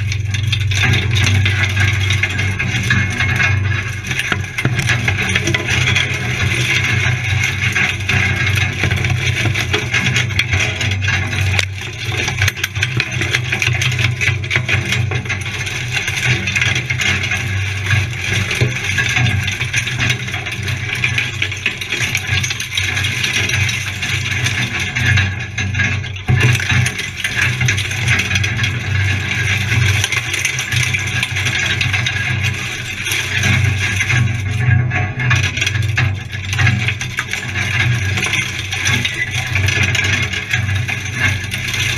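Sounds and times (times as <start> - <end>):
engine low drone: 0.0 - 23.3
vehicle rattling and knocking: 0.0 - 41.9.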